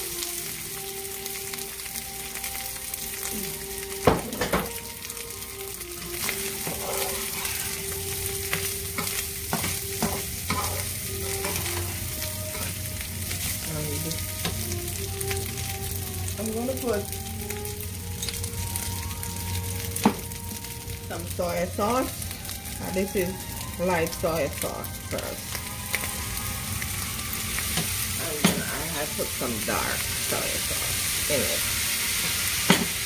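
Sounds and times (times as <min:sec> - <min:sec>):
rice sizzling in hot oil: 0:00.0 - 0:33.0
metal spatula scraping pan: 0:06.2 - 0:12.8.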